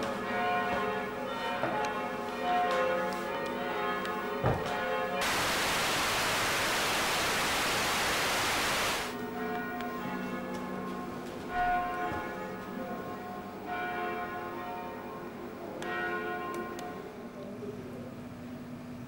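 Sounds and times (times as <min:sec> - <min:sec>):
loud even static hiss: 0:05.2 - 0:09.2.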